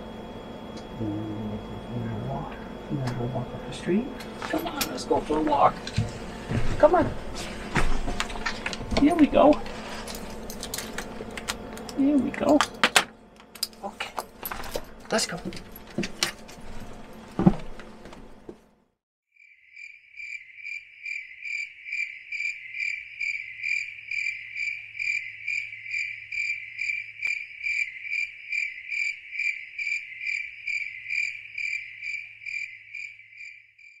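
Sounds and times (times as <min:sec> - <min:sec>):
cricket chirping: 0:19.4 - 0:34.0.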